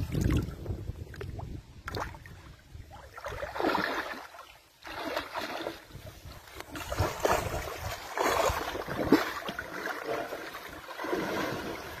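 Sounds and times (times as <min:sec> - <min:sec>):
elephant splashing in water: 0:02.9 - 0:12.0.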